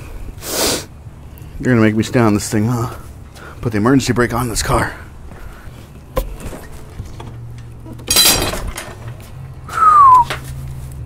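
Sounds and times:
metal bar clattering on concrete: 0:07.9 - 0:09.2.

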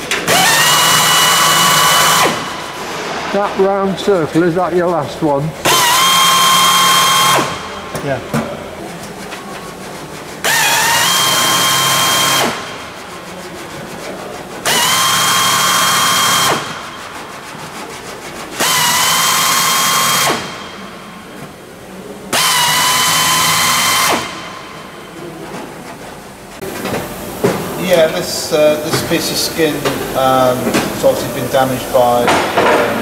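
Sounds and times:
pneumatic drill whining: 0:00.0 - 0:02.7, 0:05.6 - 0:07.8, 0:10.4 - 0:12.8, 0:14.6 - 0:16.9, 0:18.6 - 0:20.8, 0:22.3 - 0:24.6.

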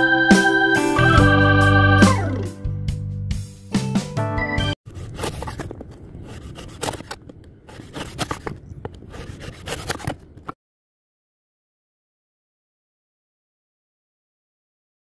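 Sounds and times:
scraping and rubbing: 0:04.9 - 0:10.6.

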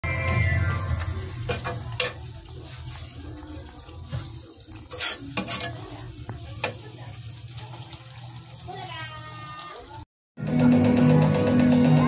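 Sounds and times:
ladle stirring stew: 0:00.1 - 0:07.0.

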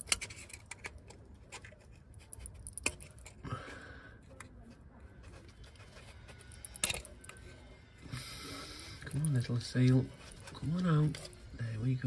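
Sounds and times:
metal pick scraping metal: 0:00.0 - 0:01.0, 0:05.4 - 0:07.6.

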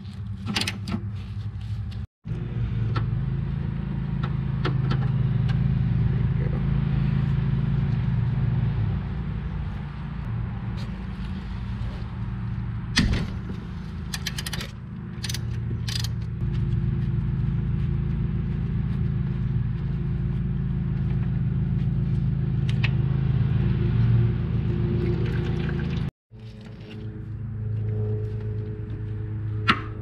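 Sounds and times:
steady low hum: 0:01.2 - 0:30.0
tool clicks and ticks: 0:14.1 - 0:16.3.

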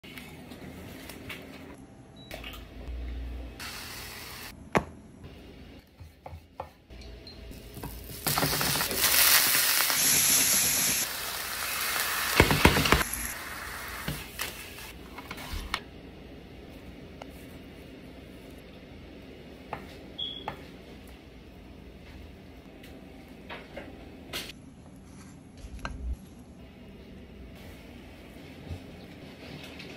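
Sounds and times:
food sizzling in a frying pan: 0:07.6 - 0:14.8
kitchen knocks and clatter: 0:12.4 - 0:13.0.

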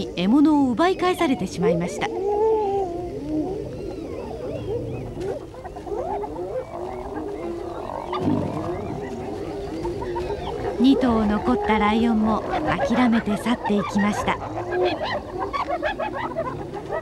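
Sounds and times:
hyenas calling: 0:00.0 - 0:17.0
low growls: 0:02.2 - 0:13.0.

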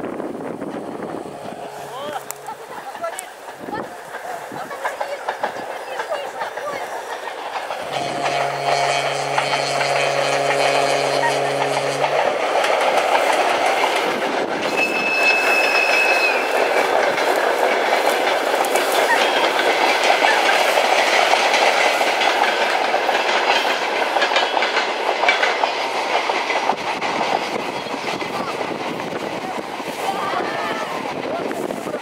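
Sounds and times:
freight train rumbling past: 0:00.0 - 0:32.0
high squeal: 0:14.7 - 0:16.5.

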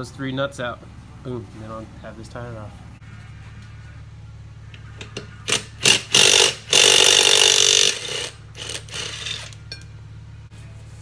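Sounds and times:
power tool bursts: 0:05.4 - 0:09.6.

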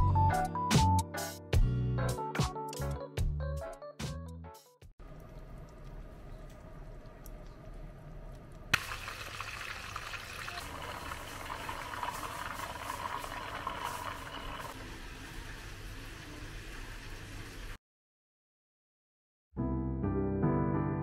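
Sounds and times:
oil sizzling and crackling: 0:08.2 - 0:17.8.

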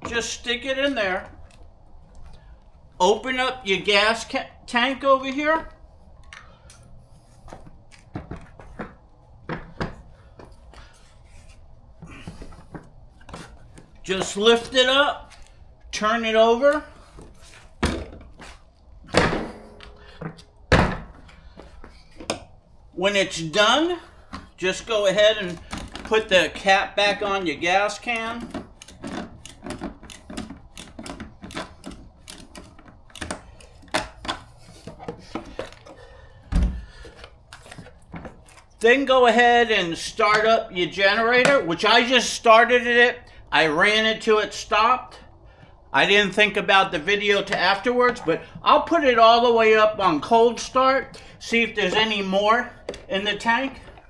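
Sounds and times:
heavy thump: 0:19.1 - 0:21.2, 0:36.5 - 0:36.9.

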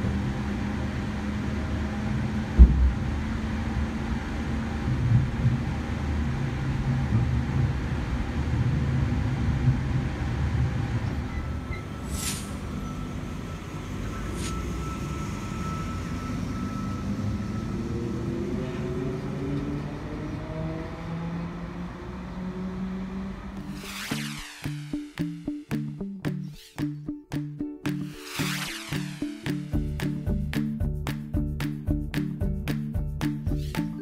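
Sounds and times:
train rumble on board: 0:00.0 - 0:19.6
short hisses: 0:12.0 - 0:12.7
train motors whining: 0:22.8 - 0:25.9, 0:28.0 - 0:30.3.

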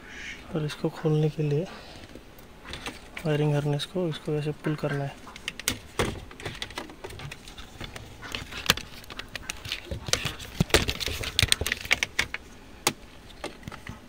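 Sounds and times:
plastic connector clicking and rattling: 0:02.0 - 0:03.3, 0:05.3 - 0:14.0.

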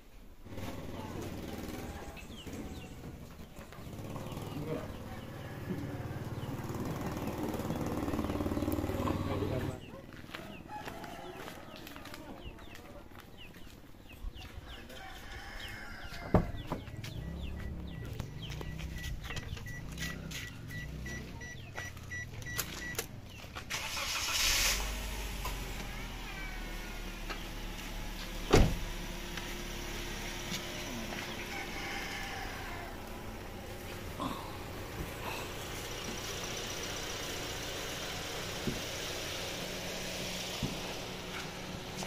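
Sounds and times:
car engine starting and idling: 0:00.3 - 0:10.7, 0:15.6 - 0:42.0
car doors shutting: 0:16.2 - 0:31.5
rapid electronic beeping: 0:17.2 - 0:23.0.

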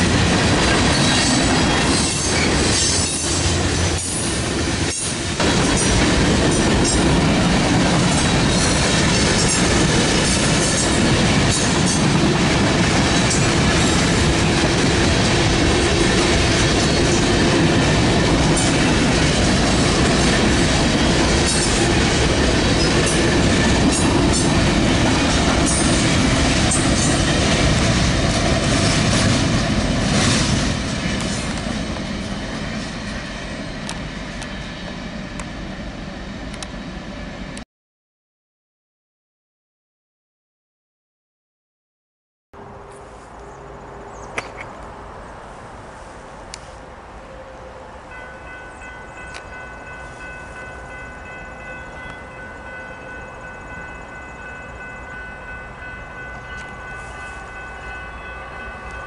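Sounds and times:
train wheels rumbling on rail: 0:00.0 - 0:37.6.

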